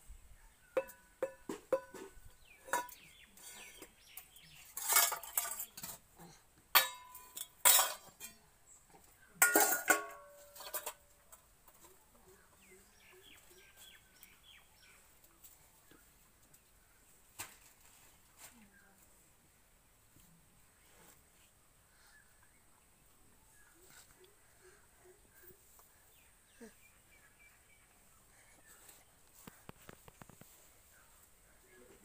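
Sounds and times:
metal bowls clanging on hard floor: 0.8 - 3.9, 4.6 - 6.0, 6.8 - 8.4, 9.4 - 11.1.

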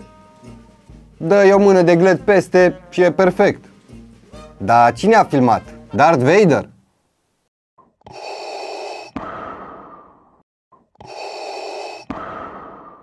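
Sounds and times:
heavy breathing: 11.0 - 13.0.

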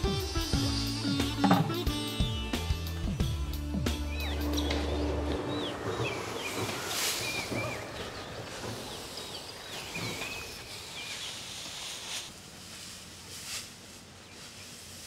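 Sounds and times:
bird whistled calls: 4.0 - 8.2
dry straw rustling and crackling: 6.2 - 15.0.

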